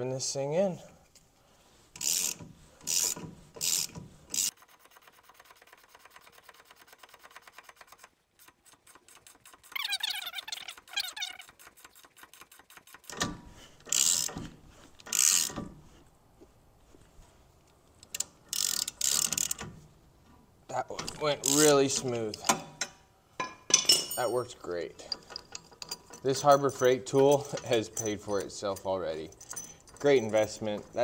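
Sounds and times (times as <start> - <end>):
ratchet wrench clicking: 2.0 - 4.6, 13.8 - 14.4, 15.0 - 15.6, 18.0 - 19.6, 21.4 - 21.7
squeaky creak: 9.2 - 11.8.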